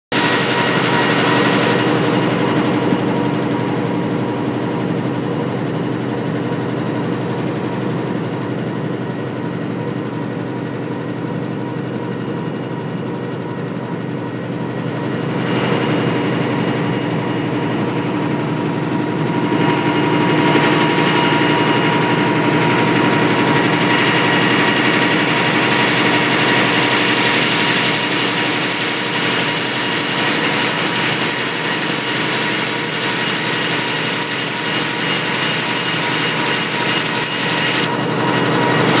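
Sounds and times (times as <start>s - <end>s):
printing press running: 0.1s - 4.6s, 15.1s - 39.0s.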